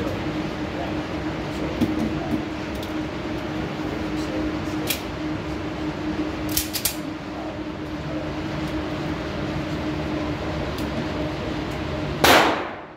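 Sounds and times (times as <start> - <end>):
ventilation system drone: 0.0 - 12.9.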